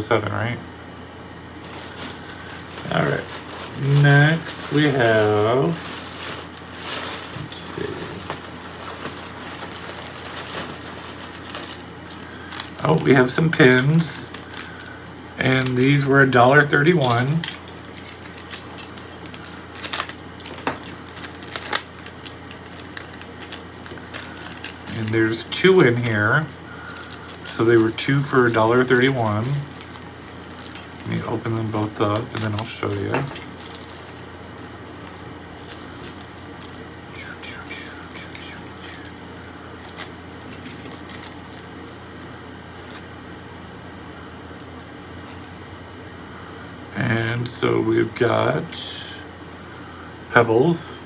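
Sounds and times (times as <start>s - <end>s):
low room hum: 0.0s - 51.0s
plastic packet crinkling: 1.6s - 16.0s, 17.0s - 42.0s, 42.8s - 43.1s
pins clicking in plastic packet: 26.9s - 34.2s.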